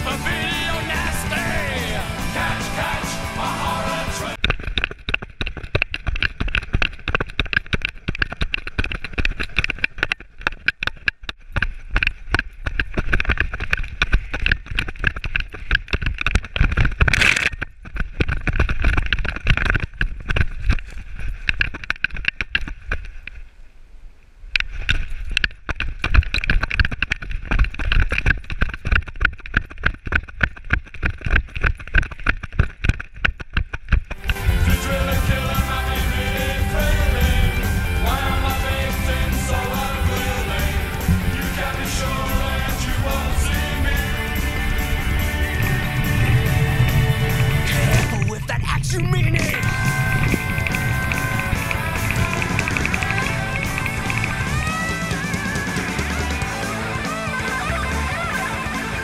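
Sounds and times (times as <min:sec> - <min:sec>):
wind rushing: 0:44.1 - 0:54.6.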